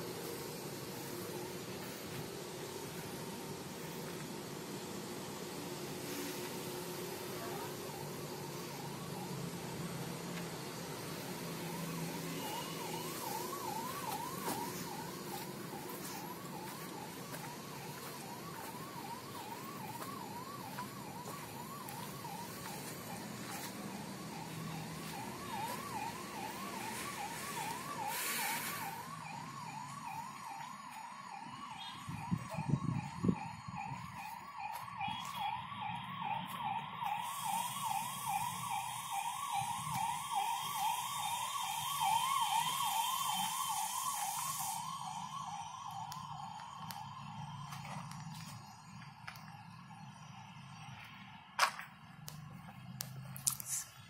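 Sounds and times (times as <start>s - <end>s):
electronic warbling alarm tone: 11.6s - 51.1s.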